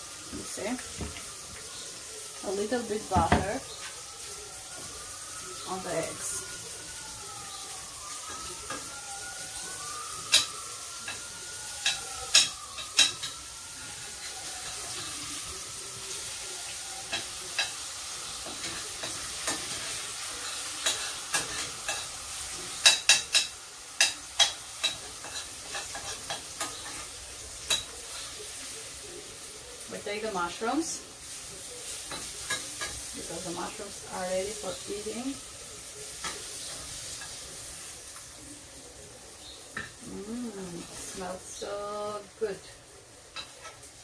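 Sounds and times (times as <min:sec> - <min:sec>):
food sizzling in a frying pan: 0:00.0 - 0:44.0.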